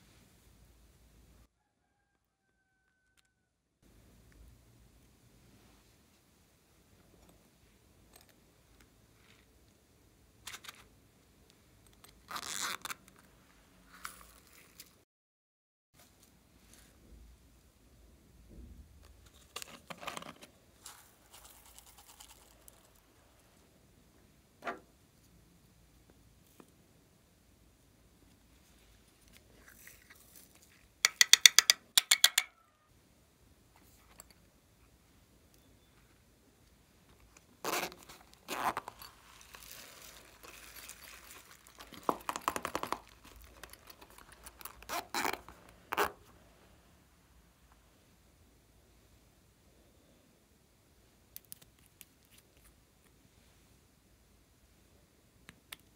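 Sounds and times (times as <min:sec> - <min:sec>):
plastic container crinkling: 0:19.3 - 0:23.0, 0:37.4 - 0:46.2.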